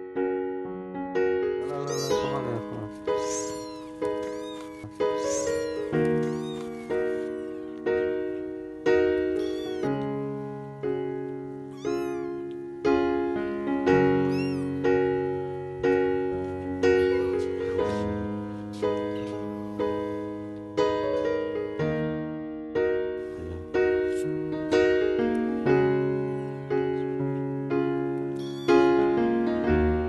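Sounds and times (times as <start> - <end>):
gentle piano music: 0.0 - 30.0
kitten meowing: 1.7 - 7.8, 9.0 - 10.3, 11.6 - 12.7, 14.1 - 15.0, 16.8 - 18.0, 28.3 - 29.1.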